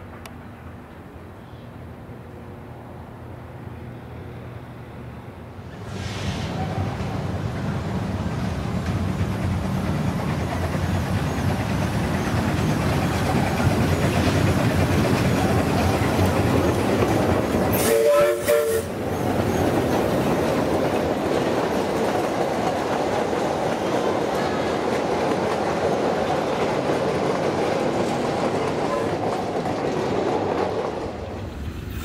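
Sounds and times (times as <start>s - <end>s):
steam locomotive passing: 0.0s - 32.0s
carriages clickety-clack on rails: 5.6s - 32.0s
steam whistle blasts: 17.7s - 19.0s.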